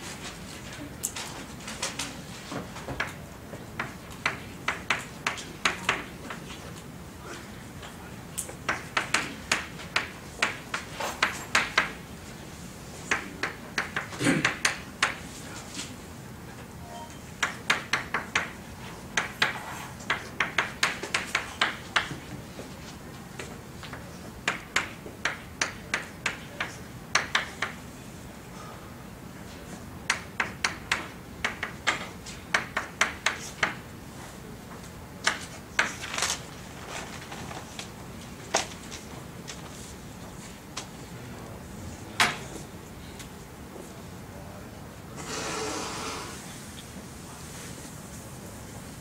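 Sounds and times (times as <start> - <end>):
chalk clicking on blackboard: 17.4 - 22.2.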